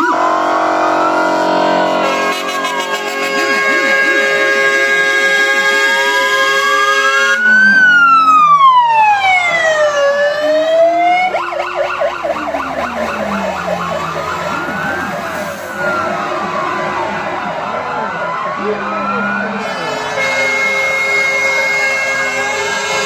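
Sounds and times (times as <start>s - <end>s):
air horn: 0.0s - 7.5s, 19.6s - 23.0s
fire engine sirens wailing: 0.0s - 23.0s.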